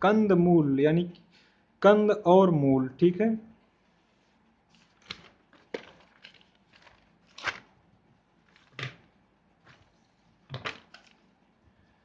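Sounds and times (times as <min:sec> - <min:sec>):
notebook pages rustling: 0:04.0 - 0:07.8, 0:08.4 - 0:11.4.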